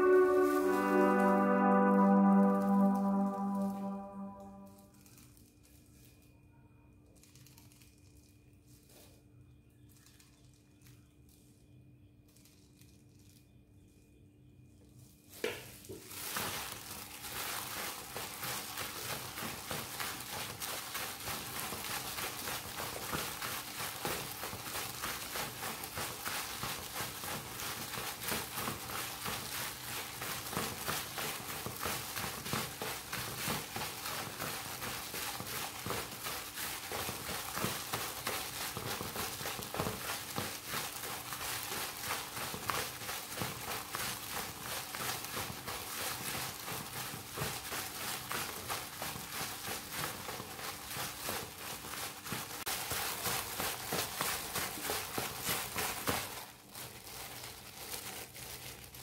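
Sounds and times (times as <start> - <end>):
plastic crinkle: 0.0 - 14.1, 14.8 - 59.0
hands patting chicken in flour: 15.3 - 59.0.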